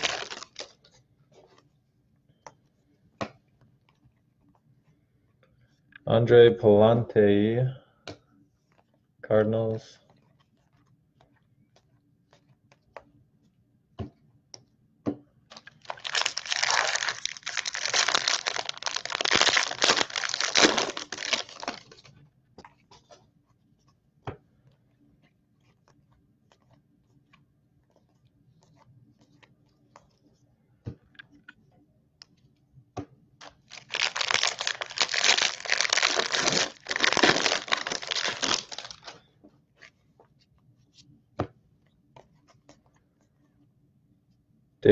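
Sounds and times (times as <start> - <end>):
foil wrappers crinkling and tearing: 0.0 - 0.8, 15.6 - 22.0, 33.4 - 39.2.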